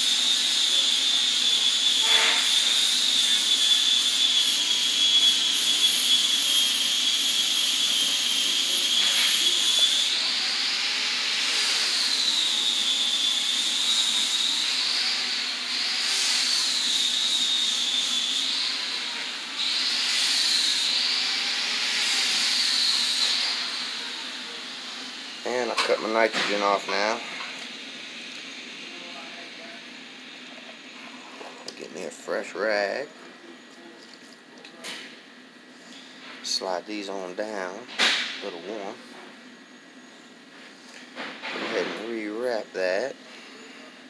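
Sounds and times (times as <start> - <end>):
gas hissing through a pipe: 0.0 - 14.9.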